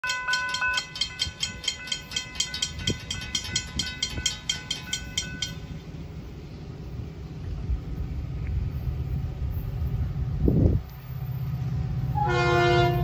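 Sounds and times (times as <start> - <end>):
crossing warning bell ringing: 0.0 - 6.3, 12.1 - 13.0.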